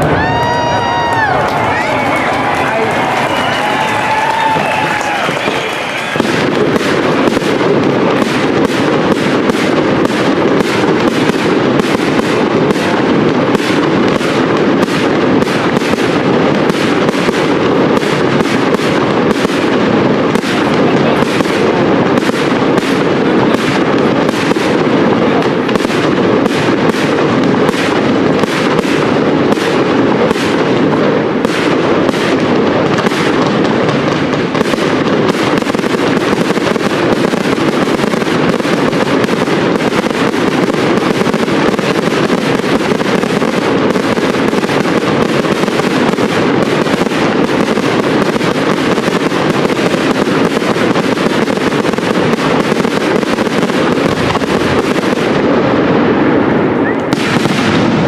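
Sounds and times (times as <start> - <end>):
fireworks bursts: 0.0 - 58.0.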